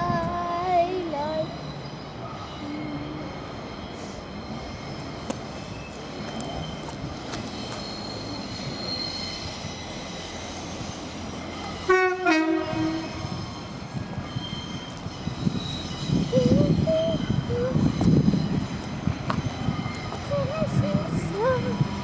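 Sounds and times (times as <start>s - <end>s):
diesel train rumble: 0.0s - 22.0s
two-note train horn: 11.9s - 13.2s.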